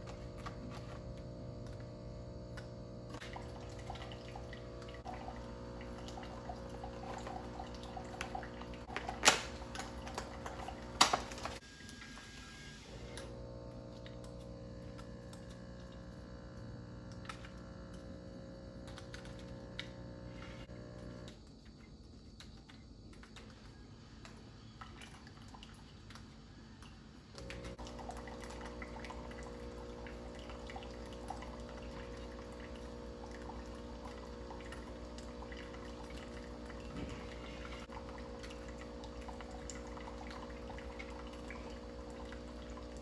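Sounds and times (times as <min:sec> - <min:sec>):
coffee machine pump humming: 0:00.0 - 0:43.0
water trickling into a jug: 0:03.1 - 0:12.1, 0:20.8 - 0:43.0.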